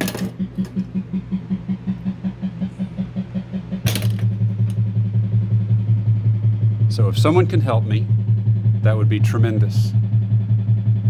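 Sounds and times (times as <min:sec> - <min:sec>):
pulsing electronic bass music: 0:00.0 - 0:11.0
sharp clack: 0:02.5 - 0:04.8.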